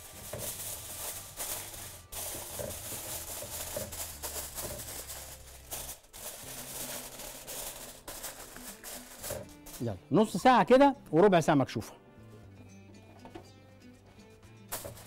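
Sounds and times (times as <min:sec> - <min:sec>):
aluminium foil crinkling: 0:00.0 - 0:09.9, 0:14.7 - 0:15.0.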